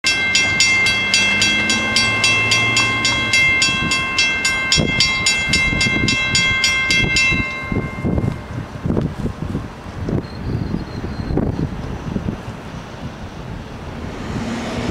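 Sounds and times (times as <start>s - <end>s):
railroad crossing bell ringing: 0.0s - 8.8s
wind gusts on microphone: 0.4s - 14.9s.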